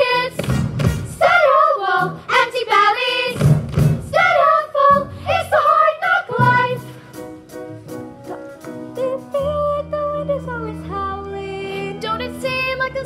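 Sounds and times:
low thumping beats: 0.3 - 9.0
cast singing together: 1.0 - 6.9.

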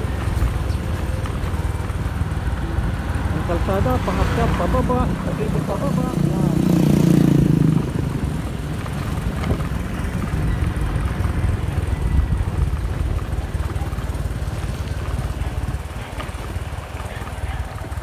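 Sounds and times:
motorcycle engine running: 0.0 - 18.0
wind noise on microphone: 7.2 - 16.1.

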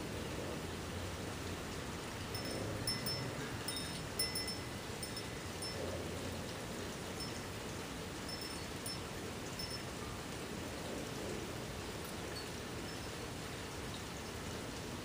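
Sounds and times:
outdoor background noise: 0.0 - 15.0
high tinkling tones: 2.2 - 6.0.

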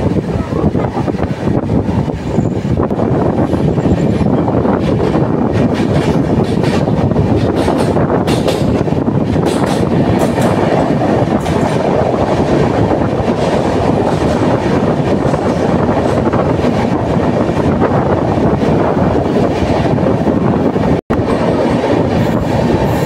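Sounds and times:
train wheel and rail noise: 0.0 - 23.0
wheels clicking over rail joints: 3.8 - 11.8.

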